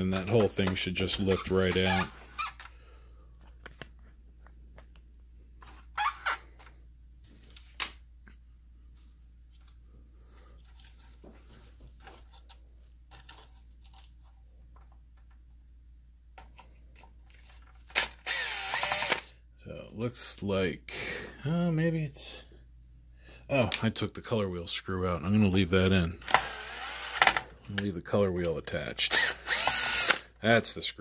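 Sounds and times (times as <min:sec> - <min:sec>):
cordless drill running: 0:17.9 - 0:19.3, 0:26.2 - 0:27.4, 0:29.1 - 0:30.3.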